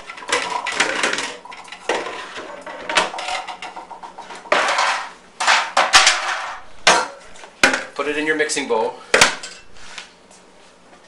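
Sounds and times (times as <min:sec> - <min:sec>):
bowls and dishes clattering: 0:00.0 - 0:07.9.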